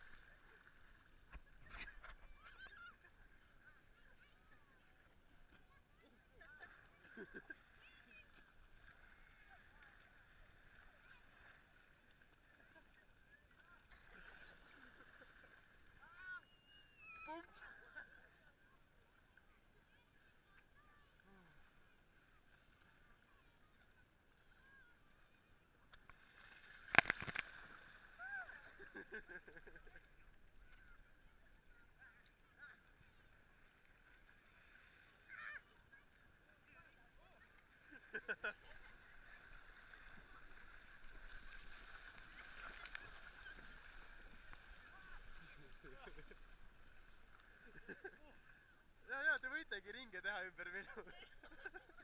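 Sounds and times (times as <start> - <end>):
muffled splashing in shallow water: 0.0 - 52.0
distant shouts of people playing: 16.0 - 17.6, 28.0 - 28.8.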